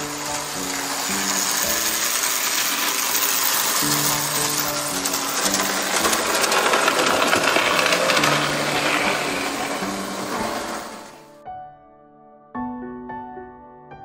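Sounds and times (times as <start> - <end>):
toy train wheel clatter: 0.0 - 11.2
toy train motor whir: 0.0 - 11.3.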